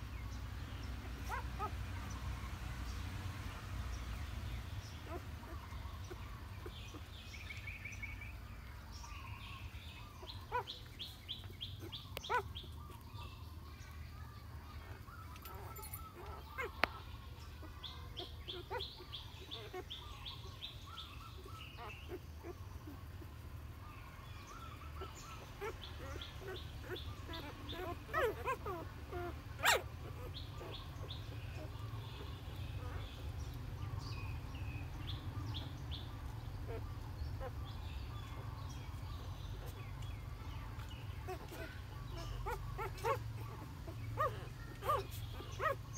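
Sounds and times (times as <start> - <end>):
puppies squeaking: 10.2 - 13.0, 15.2 - 23.0, 24.6 - 33.6, 34.3 - 45.9.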